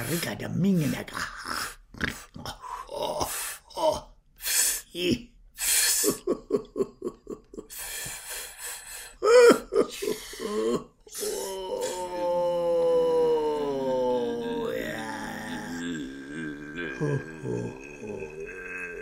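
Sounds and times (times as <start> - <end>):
men's grunt-like vocal pulses: 1.5 - 4.1, 9.2 - 19.0
men's breathy hisses and gasps: 7.7 - 9.2.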